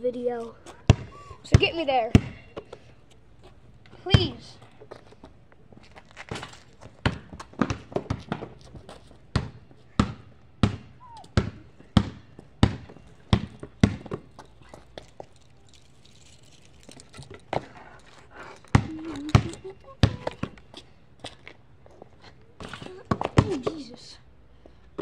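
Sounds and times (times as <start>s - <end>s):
basketball bouncing on concrete: 0.8s - 2.8s, 4.0s - 4.4s, 6.3s - 14.5s, 18.7s - 20.8s, 22.6s - 23.9s.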